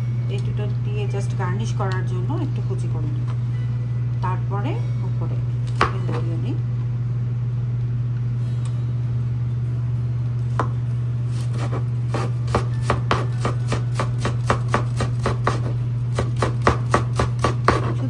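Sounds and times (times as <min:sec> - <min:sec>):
low hum: 0:00.0 - 0:16.6
knife chopping on cutting board: 0:05.7 - 0:06.1, 0:11.4 - 0:18.0.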